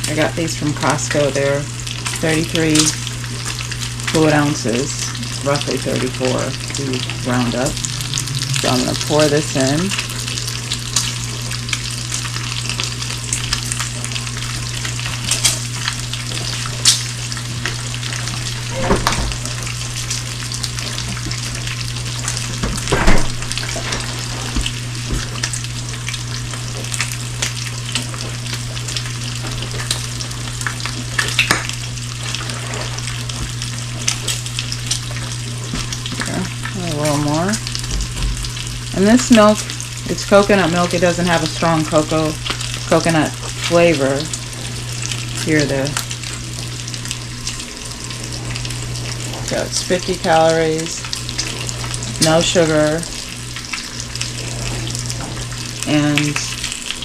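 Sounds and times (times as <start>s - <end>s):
bacon sizzling in a skillet: 0.0s - 57.0s
low steady hum: 0.0s - 57.0s.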